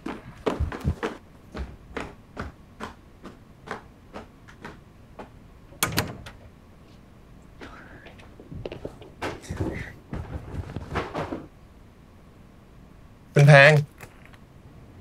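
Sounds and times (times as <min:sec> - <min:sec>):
footsteps on hard floor: 0:00.0 - 0:05.3.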